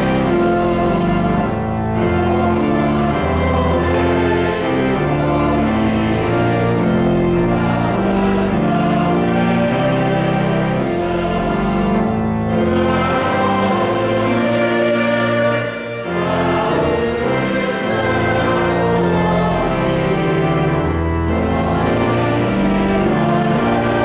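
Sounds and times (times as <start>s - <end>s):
organ playing a hymn: 0.0s - 24.0s
voices singing along: 0.0s - 24.0s.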